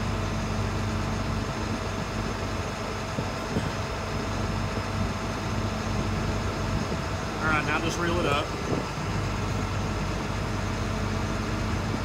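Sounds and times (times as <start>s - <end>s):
diesel engine running steadily: 0.0s - 12.0s.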